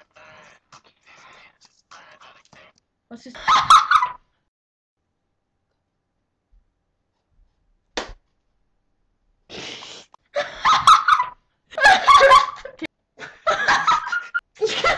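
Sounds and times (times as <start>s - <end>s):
girl laughing: 3.4s - 4.2s, 10.4s - 14.9s.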